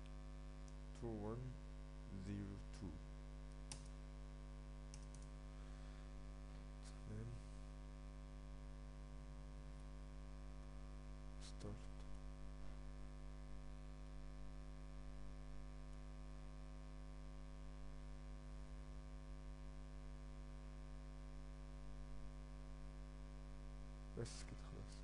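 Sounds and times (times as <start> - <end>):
electrical mains hum: 0.0 - 25.0.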